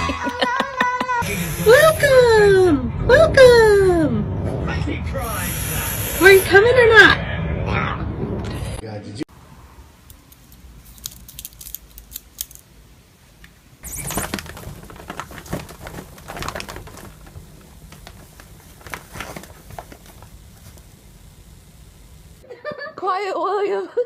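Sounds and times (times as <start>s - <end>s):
cat scratching and rustling fabric: 13.8s - 20.9s.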